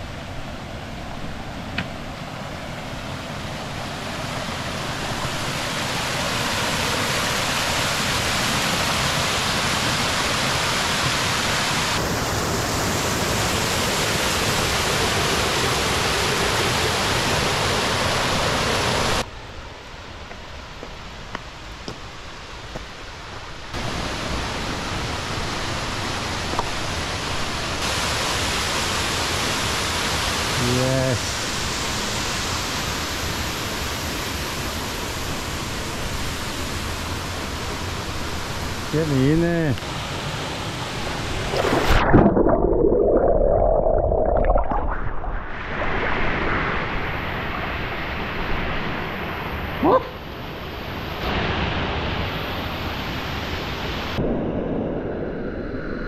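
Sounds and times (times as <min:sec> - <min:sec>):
waterfall rushing over rock: 0:03.4 - 0:19.3, 0:23.8 - 0:42.0.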